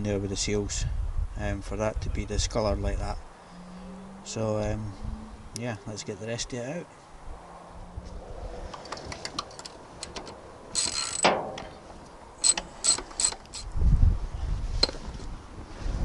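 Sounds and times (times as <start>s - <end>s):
socket ratchet clicking: 10.8s - 11.3s, 12.4s - 13.7s.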